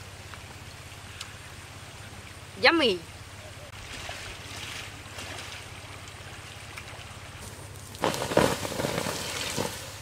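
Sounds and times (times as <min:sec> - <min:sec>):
shallow stream rushing: 0:03.7 - 0:10.0
water hissing on hot embers: 0:07.1 - 0:10.0.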